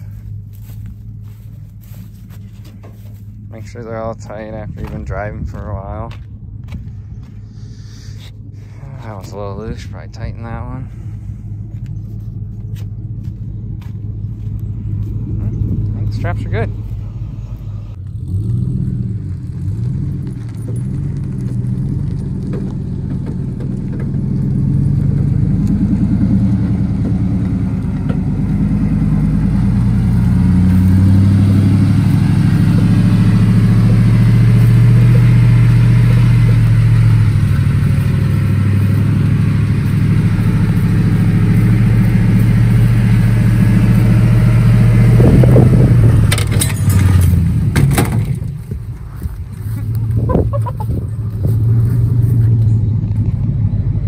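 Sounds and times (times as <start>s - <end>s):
wheel clanking and rattling: 0.0s - 6.3s, 19.3s - 28.8s, 31.0s - 53.5s
pickup engine pulling hard: 0.0s - 54.0s.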